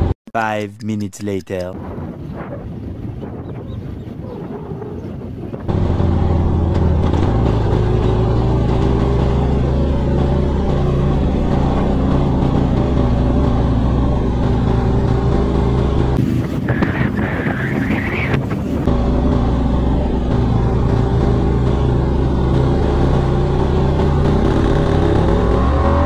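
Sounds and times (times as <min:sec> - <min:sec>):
motorcycle engine running: 0:05.7 - 0:17.4, 0:18.2 - 0:26.0.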